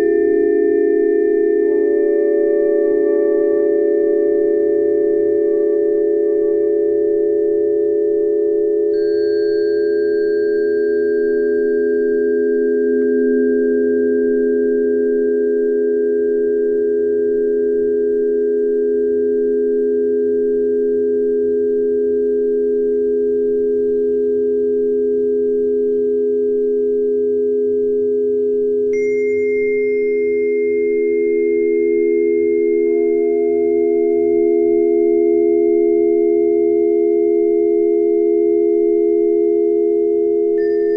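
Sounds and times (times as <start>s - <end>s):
higher ringing tone: 0.0s - 7.9s, 8.8s - 15.5s, 29.0s - 40.9s
steady pure tones: 0.0s - 15.3s
sustained meditation tone: 0.0s - 17.1s, 29.0s - 40.9s.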